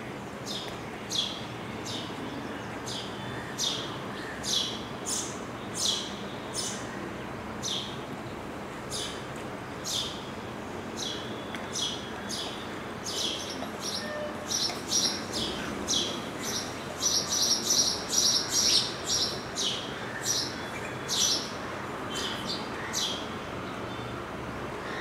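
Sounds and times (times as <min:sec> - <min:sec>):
sparrows chirping: 0:11.0 - 0:23.2.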